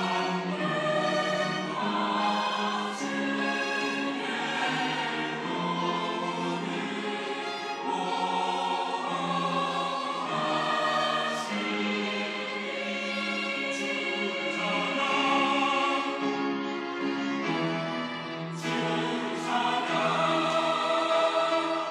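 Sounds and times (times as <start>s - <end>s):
choir singing: 0.0s - 21.9s
violins: 0.0s - 21.9s.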